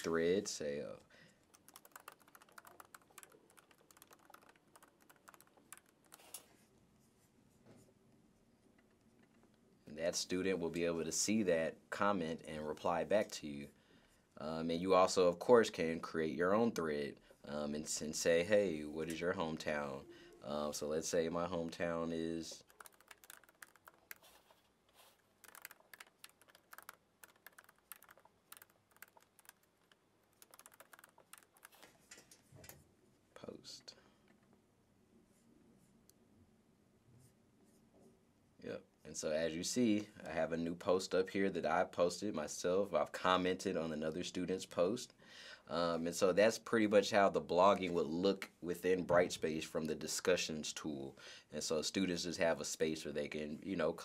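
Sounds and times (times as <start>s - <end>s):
faint laptop keyboard typing: 1.3s - 6.6s, 21.7s - 32.8s.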